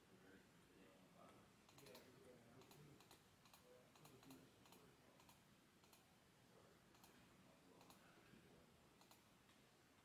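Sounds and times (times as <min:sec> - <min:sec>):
keyboard and mouse clicking: 0:01.7 - 0:02.0, 0:02.6 - 0:06.1, 0:07.8 - 0:08.0, 0:09.0 - 0:09.2.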